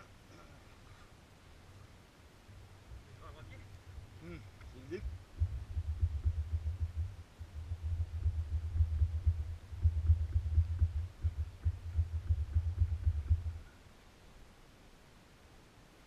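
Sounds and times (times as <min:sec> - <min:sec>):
motorcycle engine idling: 0:05.0 - 0:13.7.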